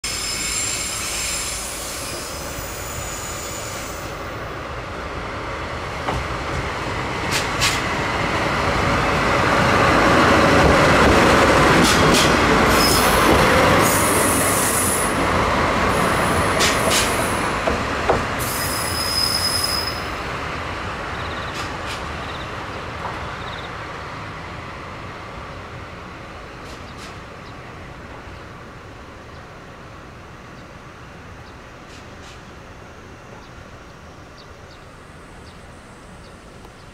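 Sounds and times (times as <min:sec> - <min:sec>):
high-pitched running gear squeals: 0:18.6 - 0:20.1.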